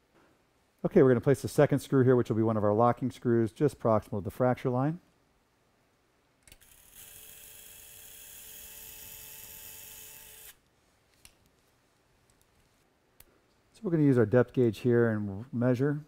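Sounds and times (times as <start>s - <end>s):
power drill whine: 6.6s - 10.6s.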